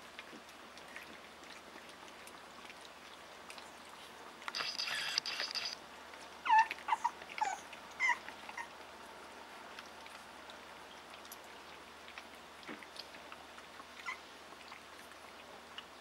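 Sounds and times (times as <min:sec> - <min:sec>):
clicks of eating: 0:00.0 - 0:08.9, 0:09.7 - 0:16.0
puppies squealing: 0:06.4 - 0:08.7, 0:14.0 - 0:14.2
puppies yelping: 0:06.4 - 0:08.8, 0:14.0 - 0:14.2.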